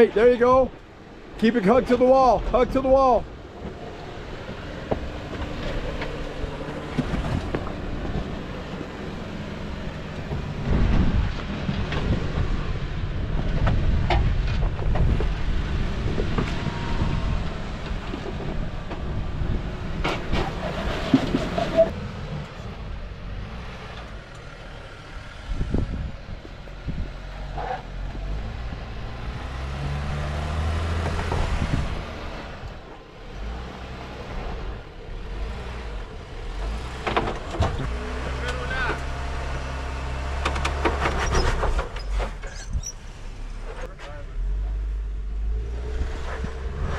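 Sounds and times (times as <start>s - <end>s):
car engine running at low speed: 0.0s - 46.9s.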